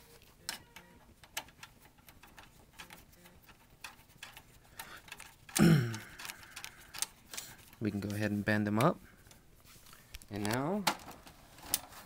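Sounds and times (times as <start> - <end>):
antenna threads clicking: 0.4 - 8.2.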